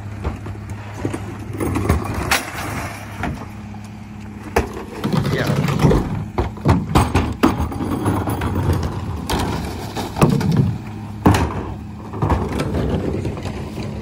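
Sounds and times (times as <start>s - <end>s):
diesel engine idling: 0.0s - 14.0s
plastic carts banging: 4.5s - 14.0s.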